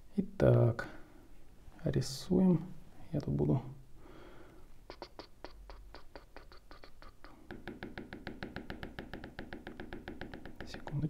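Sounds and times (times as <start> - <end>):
stylus tapping on tablet screen: 4.9 - 11.0.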